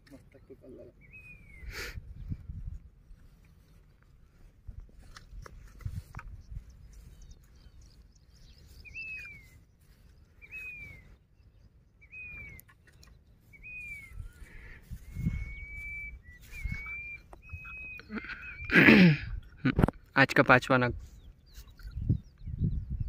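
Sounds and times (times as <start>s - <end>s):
bird whistling falling notes: 15.1s - 18.7s.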